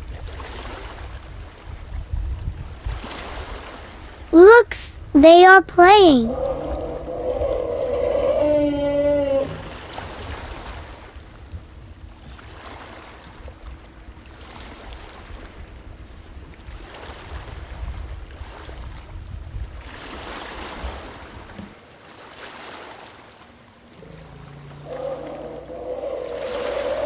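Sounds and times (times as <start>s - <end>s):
wind rumbling on microphone: 0.0s - 3.1s, 6.3s - 10.8s
low pitched elephant call: 6.2s - 9.8s, 24.0s - 27.0s
water sloshing and splashing: 19.8s - 27.0s.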